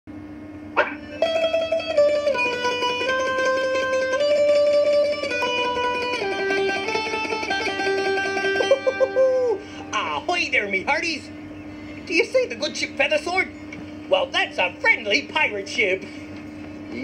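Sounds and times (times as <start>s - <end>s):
rapidly picked mandolin-like melody: 0.8s - 9.2s.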